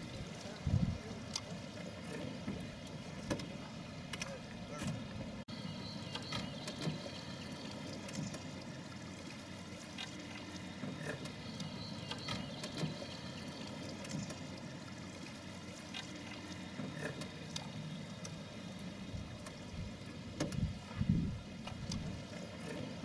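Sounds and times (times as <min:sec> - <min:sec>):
water moving against hull: 0:00.0 - 0:23.0.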